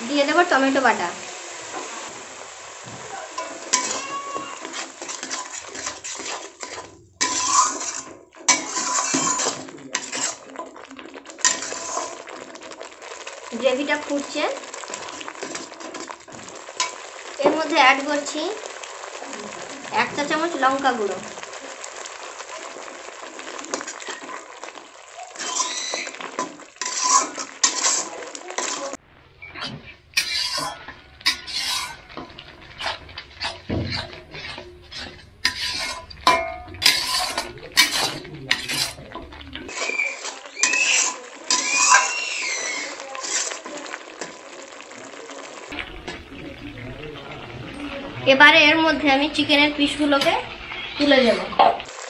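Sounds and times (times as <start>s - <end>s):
metal spatula scraping metal pan: 2.8s - 12.5s, 25.3s - 43.8s.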